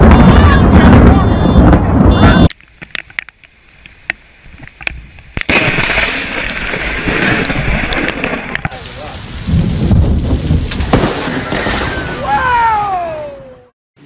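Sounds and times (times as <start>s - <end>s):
rolling thunder rumble: 0.0s - 2.4s, 5.5s - 12.6s
thunderclap: 0.0s - 2.5s, 5.4s - 12.6s
heavy rain: 5.5s - 13.7s.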